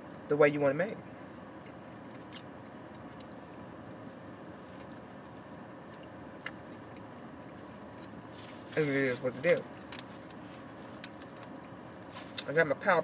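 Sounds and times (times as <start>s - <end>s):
person chewing a sandwich: 1.2s - 8.6s, 9.7s - 12.4s.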